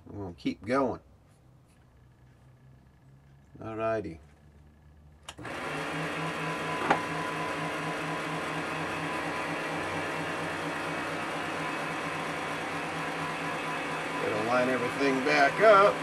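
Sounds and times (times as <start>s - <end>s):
metal lathe whining: 5.4s - 16.0s.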